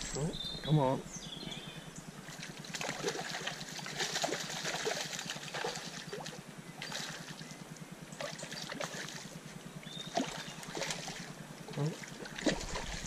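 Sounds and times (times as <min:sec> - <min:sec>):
fish thrashing water splashing: 0:02.3 - 0:07.4, 0:10.1 - 0:11.4, 0:12.0 - 0:13.0.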